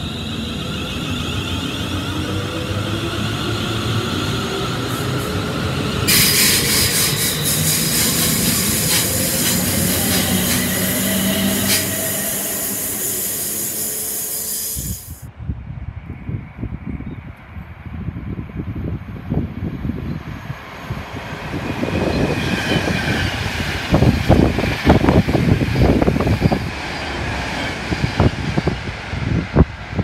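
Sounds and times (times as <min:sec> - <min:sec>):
train motors whining: 0:00.1 - 0:15.2
loud high hiss: 0:06.1 - 0:15.3.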